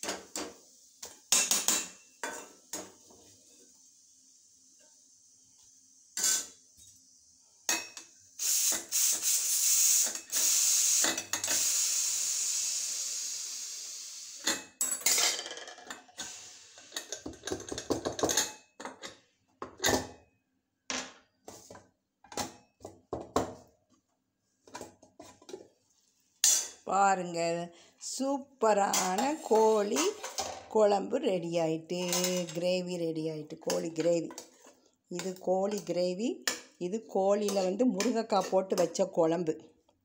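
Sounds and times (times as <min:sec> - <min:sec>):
pots and utensils clinking: 0:00.0 - 0:03.1, 0:10.0 - 0:11.8, 0:14.4 - 0:20.1, 0:32.0 - 0:32.6
loud hiss: 0:08.4 - 0:14.5.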